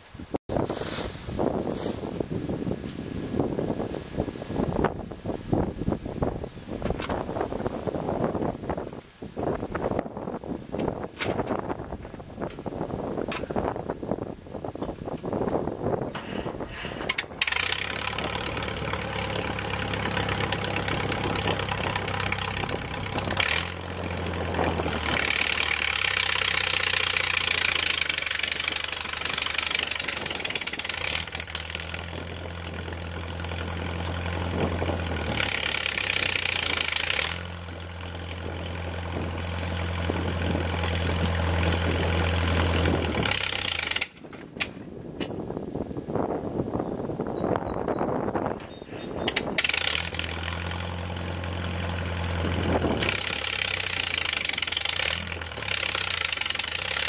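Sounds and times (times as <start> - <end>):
tractor engine running under load: 0.6 - 57.0
steel implements rattling: 16.1 - 44.5, 49.3 - 57.0.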